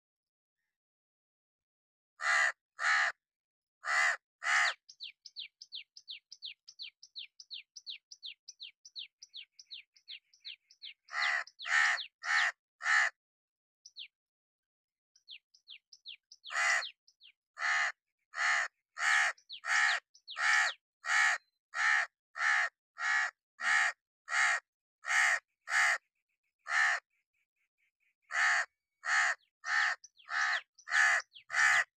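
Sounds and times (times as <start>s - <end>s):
crow cawing: 2.2s - 3.2s, 3.8s - 4.9s, 11.0s - 13.2s, 16.4s - 17.0s, 17.6s - 26.0s, 26.6s - 27.0s, 28.3s - 31.9s.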